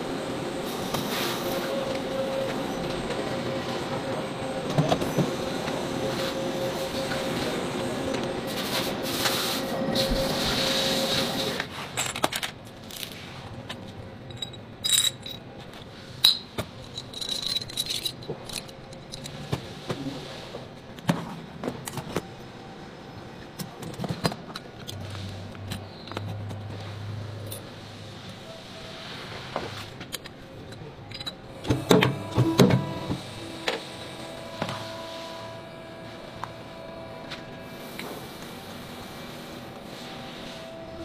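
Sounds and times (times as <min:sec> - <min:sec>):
steel parts clinking and scraping: 0:11.8 - 0:19.5, 0:30.1 - 0:31.5.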